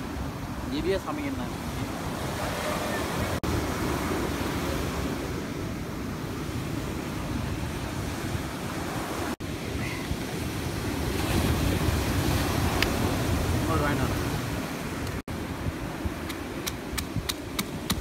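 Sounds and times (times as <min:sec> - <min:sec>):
ocean surf breaking: 0:00.0 - 0:18.0
wind buffeting microphone: 0:00.0 - 0:18.0.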